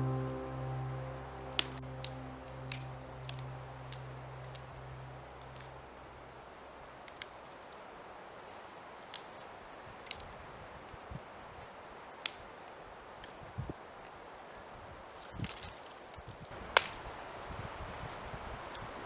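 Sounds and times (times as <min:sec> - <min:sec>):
background music: 0:00.0 - 0:06.1
twigs snapping: 0:15.2 - 0:17.0.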